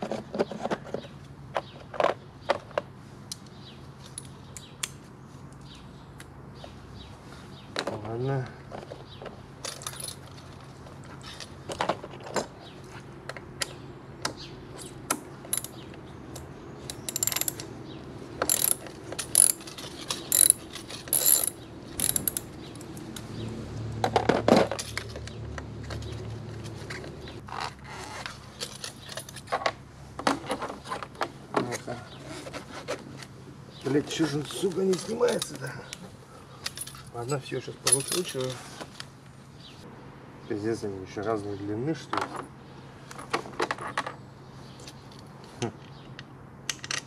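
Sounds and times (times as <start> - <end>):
metal tools clinking: 9.6 - 10.6, 15.5 - 17.7, 18.4 - 22.6, 28.6 - 29.6, 36.6 - 38.6
ratchet wrench clicking: 15.5 - 15.8, 16.9 - 17.7, 18.4 - 22.5.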